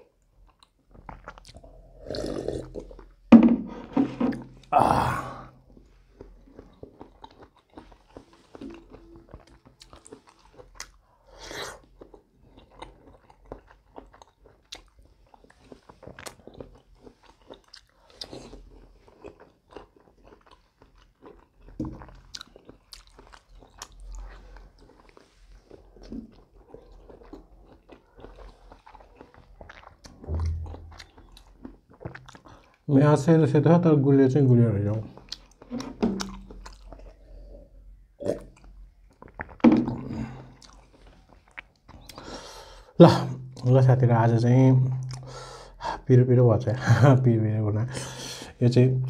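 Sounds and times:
person chewing fruit: 0:00.0 - 0:32.9, 0:35.0 - 0:43.7, 0:44.9 - 0:45.8
wet mouth clicks and crunches: 0:26.0 - 0:32.8, 0:35.2 - 0:37.2, 0:38.3 - 0:39.6.

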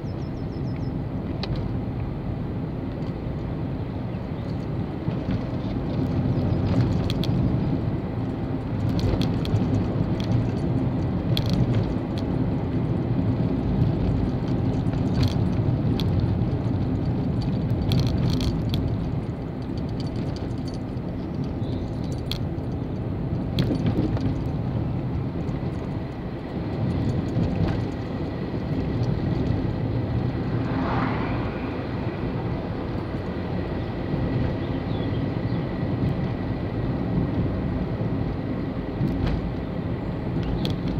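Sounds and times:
car engine and tyre noise: 0:00.0 - 0:40.9
light rattles and clicks: 0:04.4 - 0:31.3, 0:40.3 - 0:40.9.

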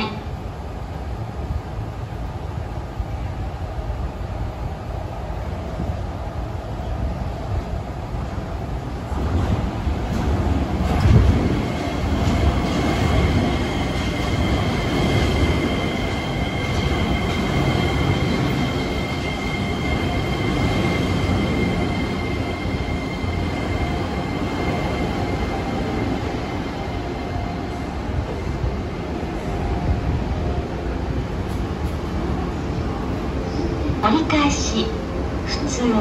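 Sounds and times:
monorail train rumble: 0:00.0 - 0:36.0.

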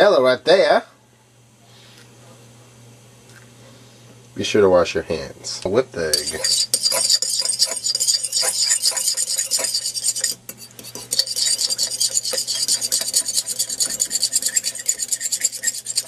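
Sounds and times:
fork whisking egg in bowl: 0:06.1 - 0:16.0.

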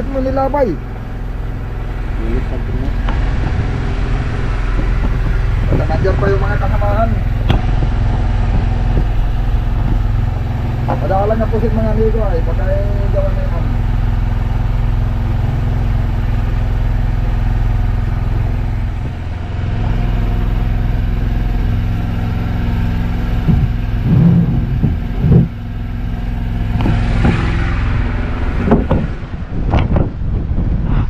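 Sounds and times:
boat engine running: 0:00.0 - 0:30.8
clattering: 0:23.4 - 0:25.6
loud knocks: 0:23.4 - 0:25.6.

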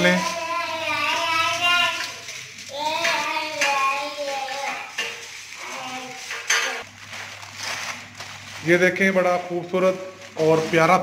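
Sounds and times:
aluminium foil crinkling: 0:00.0 - 0:11.0.

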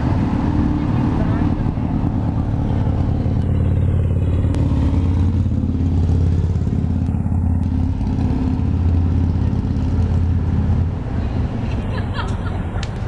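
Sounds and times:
vehicle engine idling: 0:00.0 - 0:13.0.

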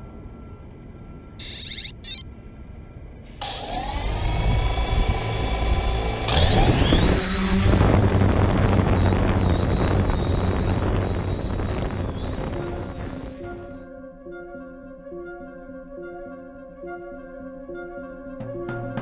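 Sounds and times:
drone propeller whine: 0:00.0 - 0:13.8
low motor hum: 0:03.4 - 0:13.8.

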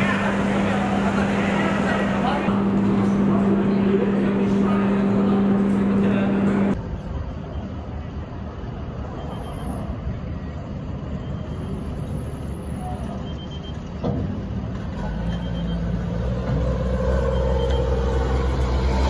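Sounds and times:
armoured vehicle diesel engine: 0:00.0 - 0:07.0, 0:09.6 - 0:19.0.

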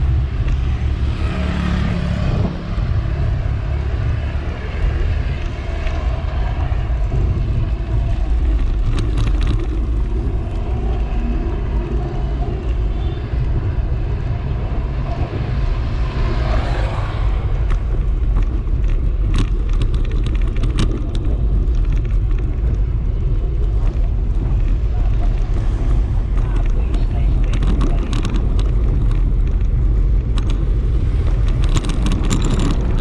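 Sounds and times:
vehicle passing: 0:00.0 - 0:19.2
road noise rumble: 0:00.0 - 0:33.0
wind buffeting microphone: 0:00.0 - 0:33.0
sharp rattles: 0:05.2 - 0:10.8, 0:17.5 - 0:33.0.

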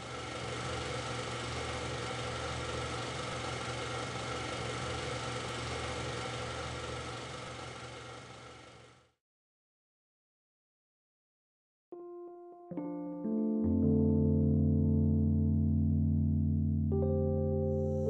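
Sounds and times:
low hum with held tones: 0:00.0 - 0:09.2.

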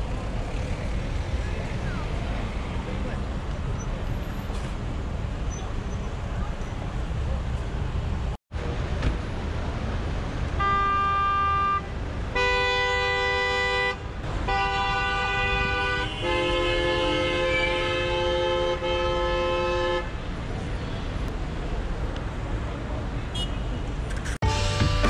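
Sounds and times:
low road rumble: 0:00.0 - 0:25.0
car horns honking: 0:10.6 - 0:20.2.

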